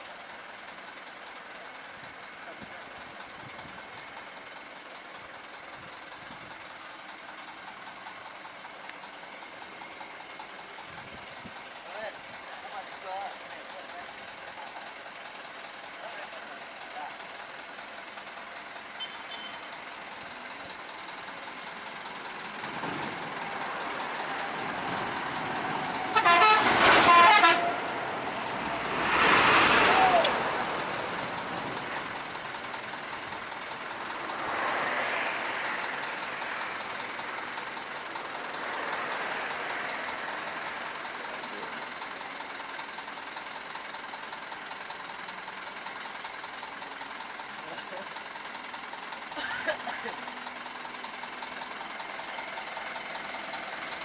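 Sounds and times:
road traffic passing: 0.0 - 54.0
vehicle horn blaring: 19.0 - 19.7, 26.0 - 28.0
vehicle passing loudly: 22.8 - 32.3, 33.9 - 37.5, 38.2 - 41.0.

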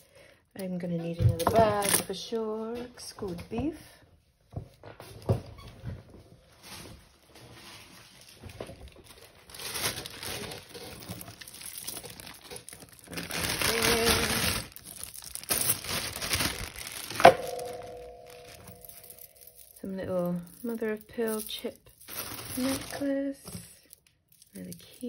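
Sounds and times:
plastic bag crinkling: 6.5 - 25.0.

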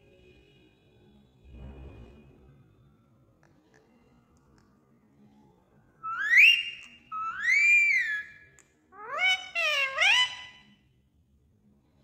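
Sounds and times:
parrot whistled calls: 6.0 - 8.4, 9.0 - 10.6.

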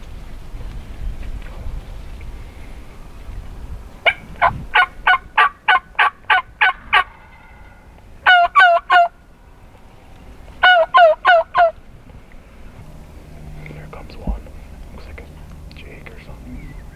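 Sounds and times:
turkey yelps: 4.0 - 7.2, 8.2 - 9.2, 10.6 - 11.8.

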